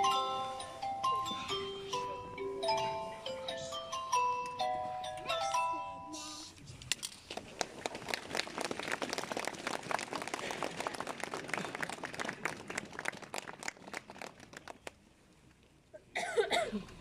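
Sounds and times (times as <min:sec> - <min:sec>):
crowd applauding: 0:07.3 - 0:15.0.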